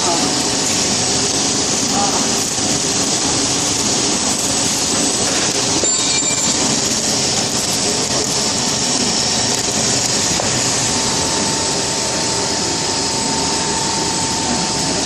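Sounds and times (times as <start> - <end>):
oven fans whirring: 0.0 - 15.0
steady whine: 0.0 - 15.0.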